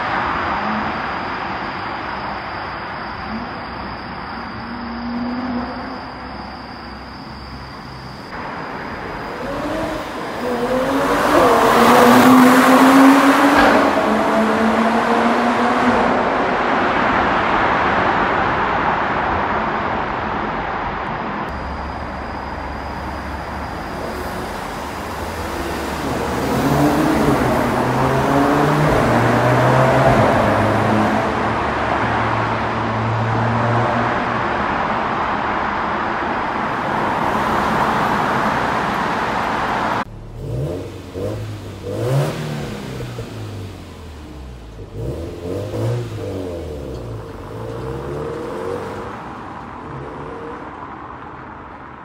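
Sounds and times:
car exhaust accelerating in tunnel: 0.0 - 52.0.

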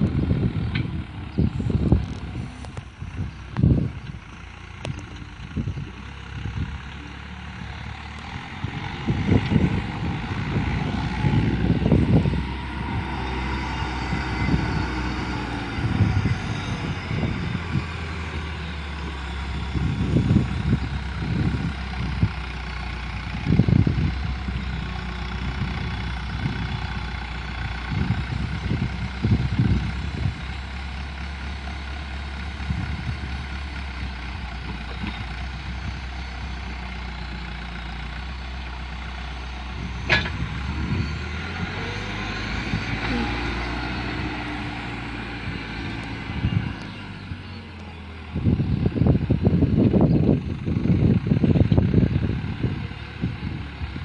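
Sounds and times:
diesel engine running: 0.0 - 54.0
low rumbles: 0.0 - 54.0.

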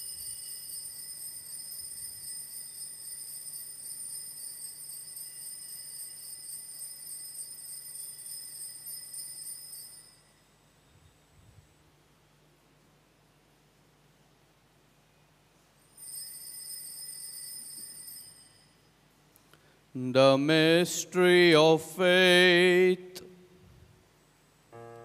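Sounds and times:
altar bells jingling: 0.0 - 10.5, 15.9 - 18.9.

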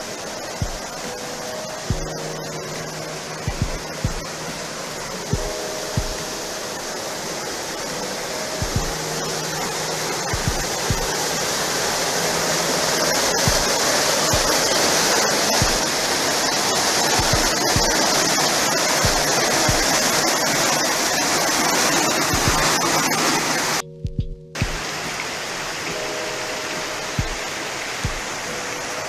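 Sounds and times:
waterfall rushing: 0.0 - 24.0, 24.6 - 29.0
low thumps: 3.5 - 4.3, 10.3 - 11.1, 23.8 - 24.9.

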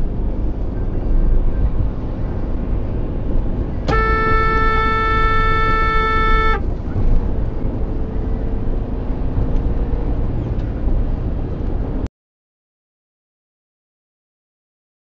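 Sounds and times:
car road and engine rumble: 0.0 - 12.1
car horn held note: 3.9 - 6.7.

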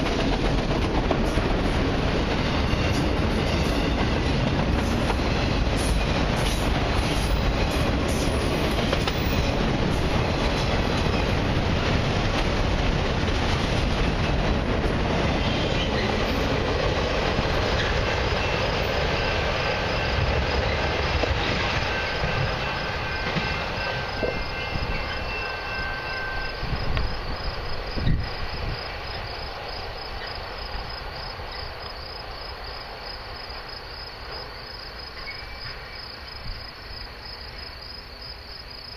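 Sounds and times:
train clank: 0.0 - 31.8, 33.5 - 37.7
freight train rumbling on rails: 0.0 - 38.9
crickets chirping: 0.1 - 38.9
faint high squeal: 21.9 - 27.4, 35.2 - 36.1.

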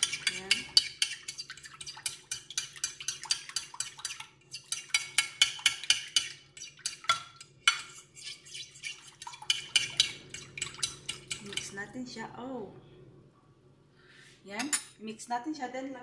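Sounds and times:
fork whisking against glass: 0.0 - 11.8.

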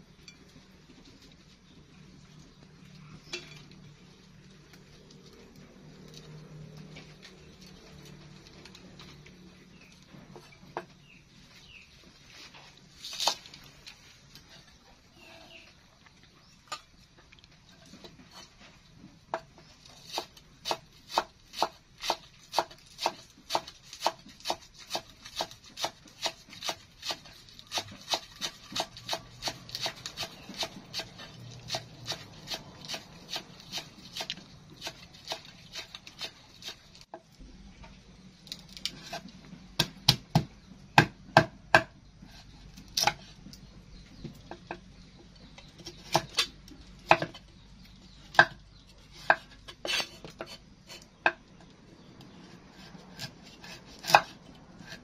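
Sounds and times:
cleaver chopping on wooden block: 39.8 - 42.0.

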